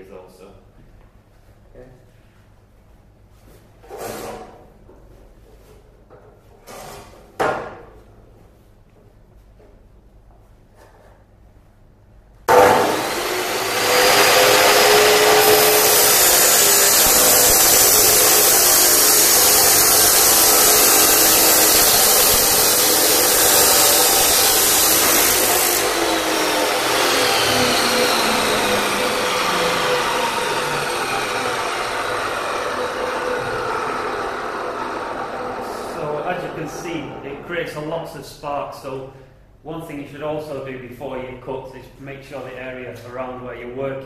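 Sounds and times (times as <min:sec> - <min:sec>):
chop saw motor: 0:12.5 - 0:37.4
saw disc cutting metal hiss: 0:12.5 - 0:37.9.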